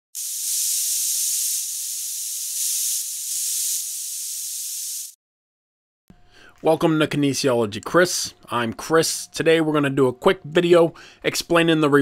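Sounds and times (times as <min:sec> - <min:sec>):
spray paint can hissing: 0:00.1 - 0:05.2.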